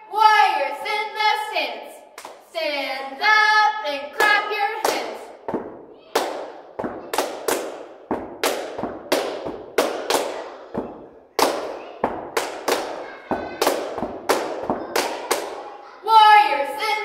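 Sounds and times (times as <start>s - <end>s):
people clapping in hallway: 2.2s - 2.4s, 4.2s - 5.2s, 6.1s - 15.9s
heavy thuds: 5.4s - 12.6s.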